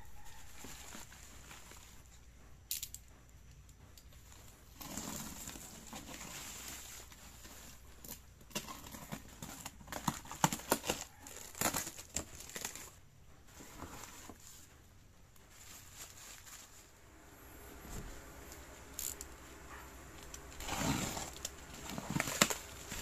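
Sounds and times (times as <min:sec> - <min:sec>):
packing plastic crinkling: 0:04.8 - 0:14.7, 0:15.5 - 0:23.0
knife slitting cardboard box: 0:20.6 - 0:23.0.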